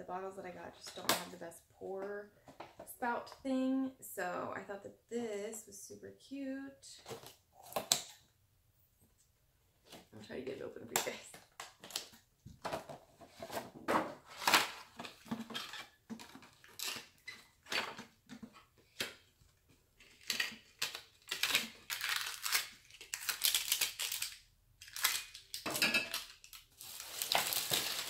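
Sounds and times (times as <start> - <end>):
packaging tearing and crinkling: 20.1 - 28.0.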